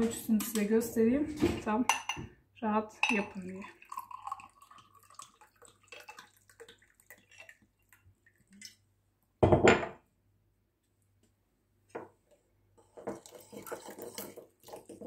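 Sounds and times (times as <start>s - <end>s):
spoon clinking ceramic bowl: 1.9s - 2.2s, 3.0s - 3.4s
water pouring: 3.3s - 8.8s, 12.8s - 15.0s
glassware knocking on stone: 9.4s - 10.0s.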